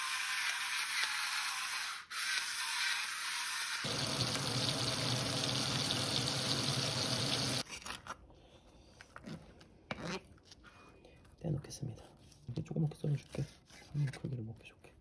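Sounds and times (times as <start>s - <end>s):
steaks sizzling in a frying pan: 3.9s - 7.6s.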